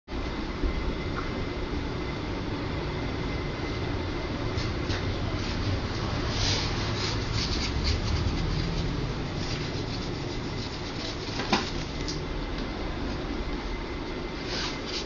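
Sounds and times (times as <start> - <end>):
steady low rumble: 0.1 - 14.4
scratchy rubbing and scraping: 5.4 - 12.1, 14.4 - 15.0.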